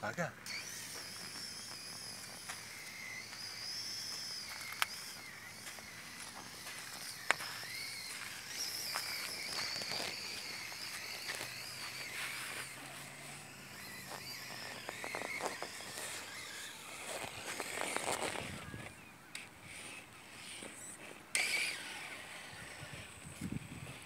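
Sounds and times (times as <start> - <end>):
electric motor whining: 0.4 - 24.0
tyres crunching on stones: 0.6 - 18.9.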